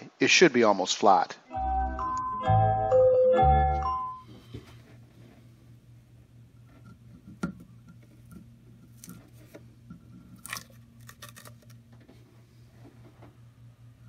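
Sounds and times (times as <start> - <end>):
tape tearing crackles: 10.4 - 11.8.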